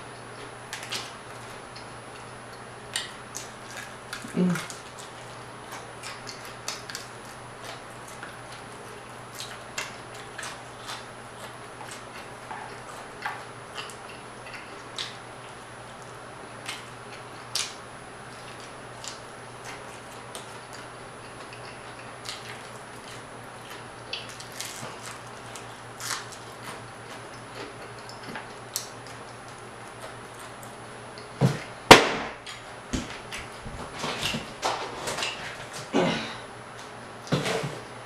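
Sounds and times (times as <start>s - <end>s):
steady low hum: 0.0s - 38.0s
crunching fried fish: 2.9s - 30.8s.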